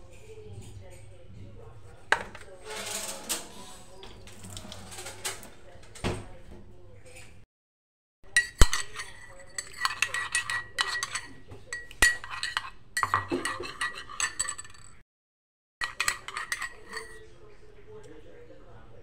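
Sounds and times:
metal spoon clinking on glass: 8.3 - 15.0, 15.8 - 17.2.

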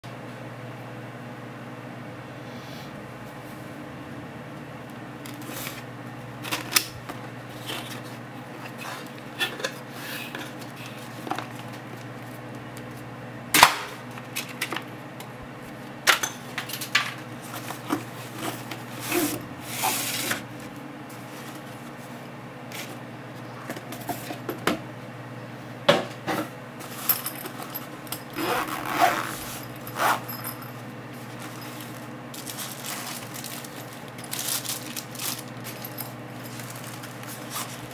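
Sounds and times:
steady low hum: 0.1 - 37.9
cardboard packaging rustling: 26.8 - 37.9
zipper pull: 28.3 - 30.6.

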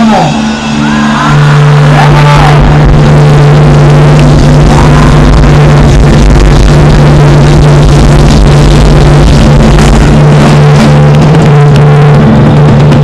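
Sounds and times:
distorted live band music: 0.0 - 13.0.

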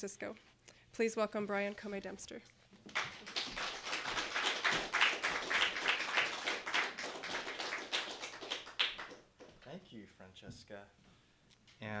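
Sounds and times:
audience applauding: 2.9 - 9.5.

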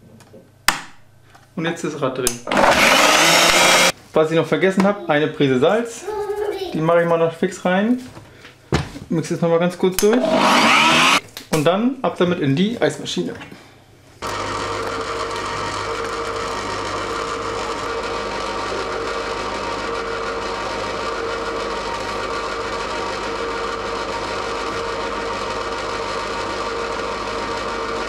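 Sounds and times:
ice cream maker humming: 2.5 - 3.9, 10.0 - 11.2, 14.2 - 28.0.

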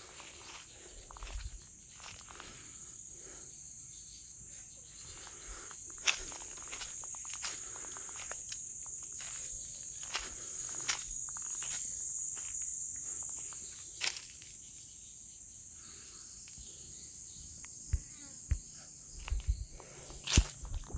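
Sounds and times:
footsteps on dry leaves: 0.0 - 2.6, 5.1 - 14.4, 19.2 - 20.9
high-pitched insect chorus: 0.0 - 20.9.

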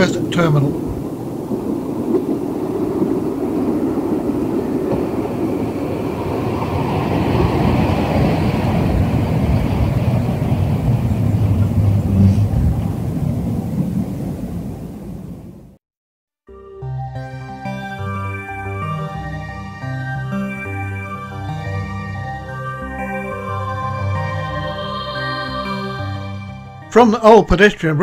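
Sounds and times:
train rumbling on rails: 0.0 - 15.8.

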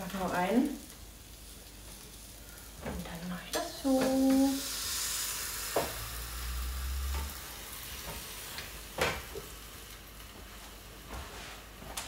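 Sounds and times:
dough sizzling in waffle iron: 0.0 - 12.0.

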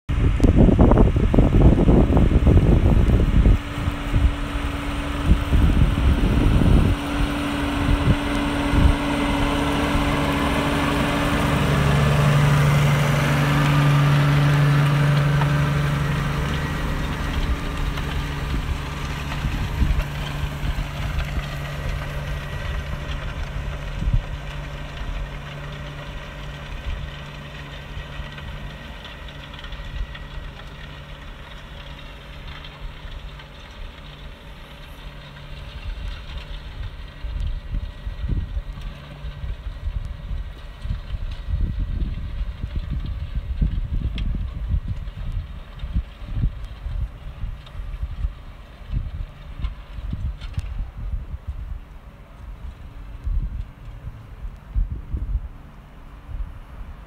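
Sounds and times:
tractor diesel engine running: 0.1 - 57.0.

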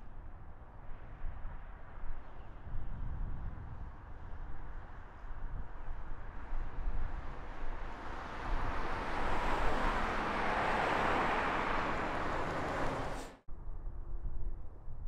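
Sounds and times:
rushing vehicle noise: 3.8 - 13.4.

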